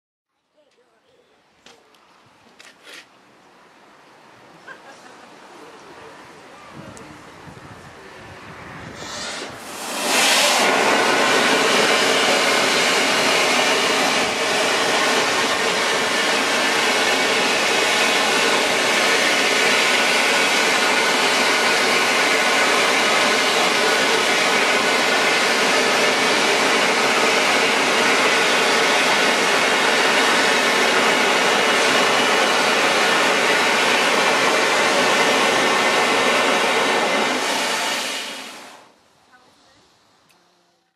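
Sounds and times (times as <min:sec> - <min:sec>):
steam rushing hiss: 0:08.4 - 0:39.0.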